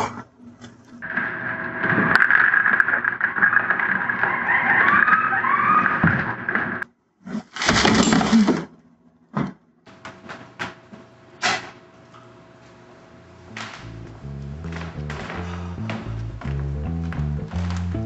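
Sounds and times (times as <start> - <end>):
loud crash of breaking: 7.6 - 8.7.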